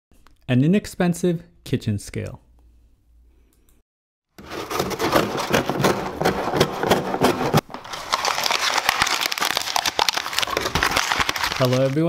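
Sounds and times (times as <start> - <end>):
dense crackling and crinkling: 4.4 - 12.0.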